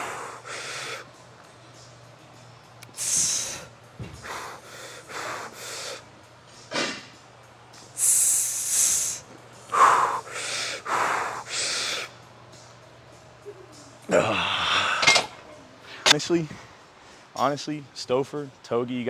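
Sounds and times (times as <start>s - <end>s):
man breathing hard: 0.0s - 1.1s, 3.0s - 6.1s, 8.0s - 12.1s
loud hissing exhale: 3.0s - 6.1s, 8.0s - 12.1s.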